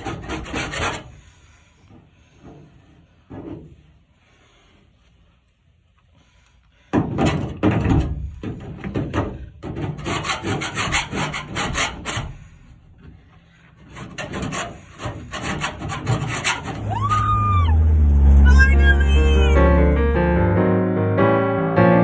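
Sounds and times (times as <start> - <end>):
hand scraper rasping on metal: 0.0 - 1.4, 9.6 - 12.6, 13.6 - 16.9
person whooping yell: 16.8 - 19.8.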